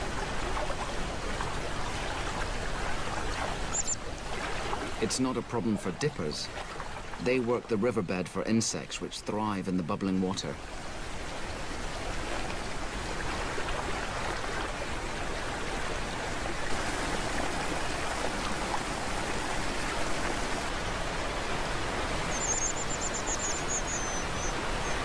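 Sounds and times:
bird trilling: 0:03.7 - 0:04.0, 0:22.3 - 0:25.0
river water rushing over rocks: 0:10.6 - 0:25.0.

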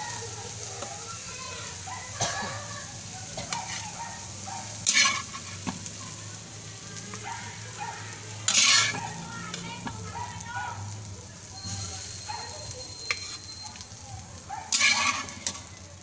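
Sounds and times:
food sizzling in frying pan: 0:00.0 - 0:16.0
spatula scraping pan: 0:03.3 - 0:06.2, 0:07.1 - 0:10.5, 0:11.6 - 0:15.8.

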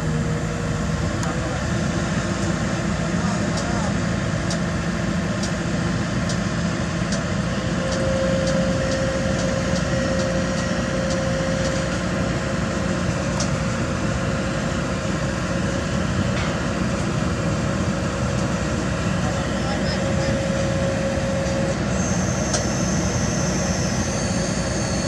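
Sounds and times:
excavator diesel engine running: 0:00.0 - 0:25.0
steady whine: 0:00.0 - 0:25.0.

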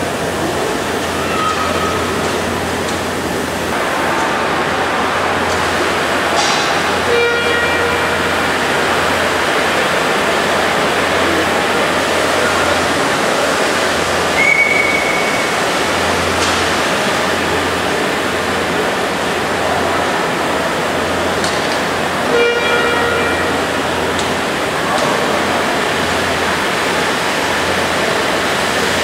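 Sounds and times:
steady rushing steam hiss: 0:00.0 - 0:29.0
steam whistle toots: 0:01.2 - 0:02.2, 0:07.0 - 0:08.6, 0:14.2 - 0:15.7, 0:22.3 - 0:24.0.

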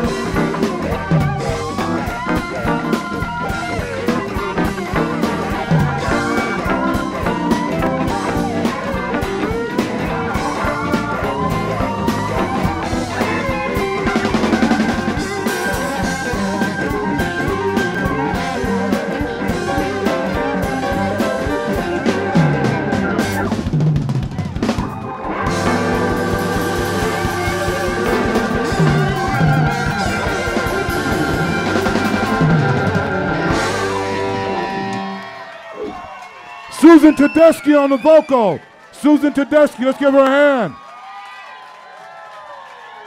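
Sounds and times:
blues-rock band instrumental: 0:00.0 - 0:36.0.

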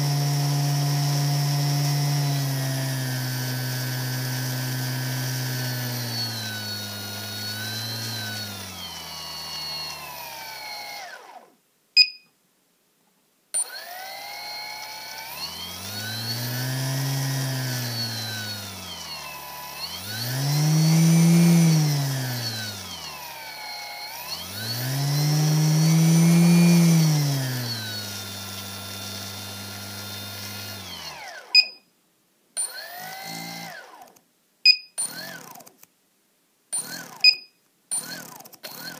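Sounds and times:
electric motor whining: 0:00.0 - 0:11.5, 0:13.6 - 0:31.6, 0:32.7 - 0:34.2, 0:38.0 - 0:38.9
short beeps: 0:12.0 - 0:12.3, 0:31.6 - 0:31.9, 0:34.7 - 0:35.0.

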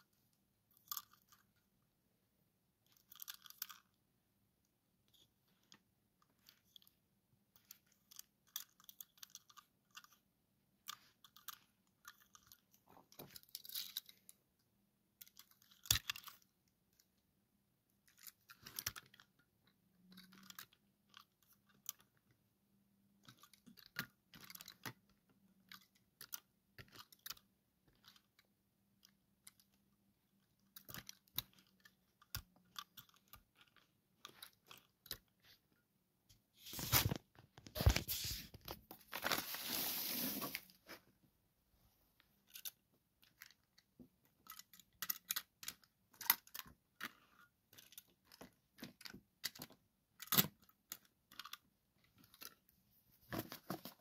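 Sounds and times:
toy cars clicking and tapping: 0:00.7 - 0:01.6, 0:02.8 - 0:04.0, 0:05.1 - 0:14.4, 0:15.1 - 0:17.2, 0:18.0 - 0:35.6, 0:42.4 - 0:52.7.

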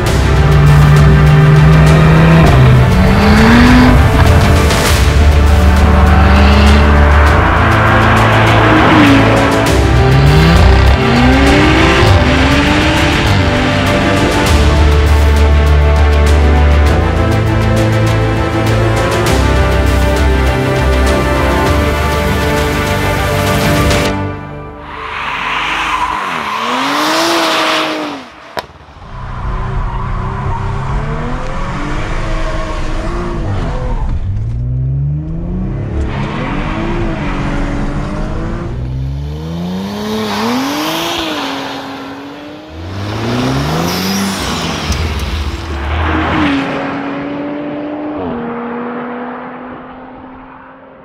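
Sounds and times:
car engine revving hard: 0:00.6 - 0:14.4, 0:25.9 - 0:28.7, 0:34.4 - 0:50.3.

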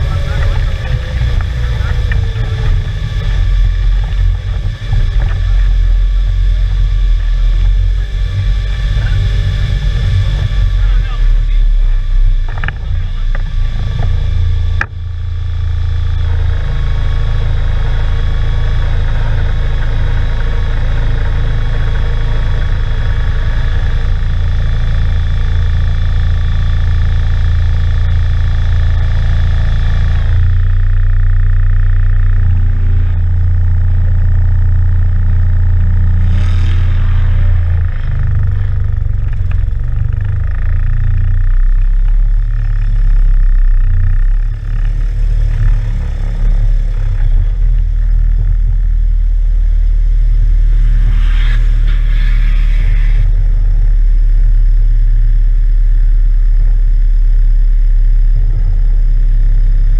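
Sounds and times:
engine running at low revs: 0:00.0 - 0:59.9
high steady whine: 0:00.0 - 0:59.9.

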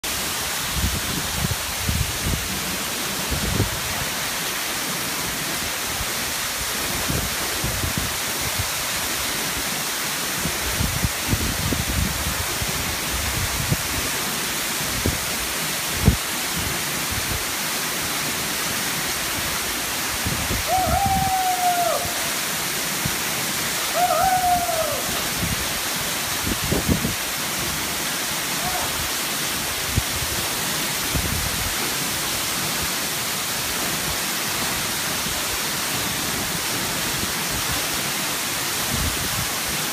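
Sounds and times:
waterfall rushing into pool: 0:00.0 - 0:39.9
short high calls: 0:23.9 - 0:25.2.

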